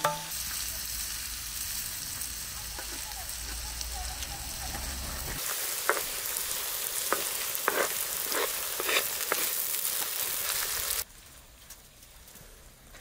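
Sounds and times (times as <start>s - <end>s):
onions and peppers sizzling: 0.0s - 13.0s
wooden spatula scraping pan: 5.8s - 6.3s, 6.9s - 10.4s.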